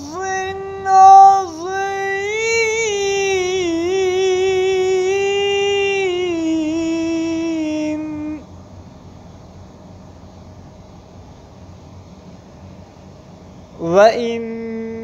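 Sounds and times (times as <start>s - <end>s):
high voice chanting recitation: 0.0s - 8.5s, 13.7s - 15.0s.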